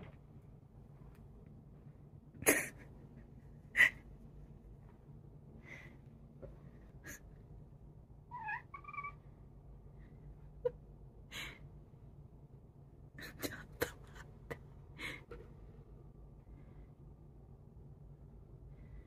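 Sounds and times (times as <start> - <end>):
cat meowing: 8.3 - 9.2.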